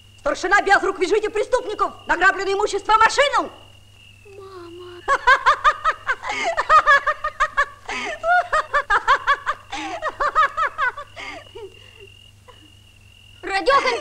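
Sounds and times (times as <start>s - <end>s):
woman laughing: 4.7s - 12.7s.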